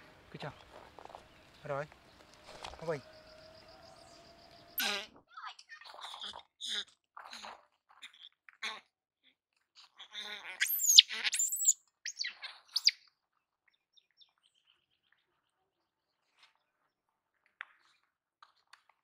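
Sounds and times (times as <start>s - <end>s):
baby monkey screeching: 4.8s - 5.1s, 10.0s - 13.0s.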